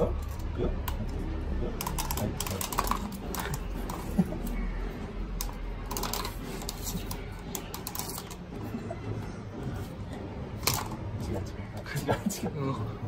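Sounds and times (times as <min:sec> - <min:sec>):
plastic toy clicking and rattling: 0:00.0 - 0:04.2, 0:05.3 - 0:08.5, 0:10.6 - 0:11.2.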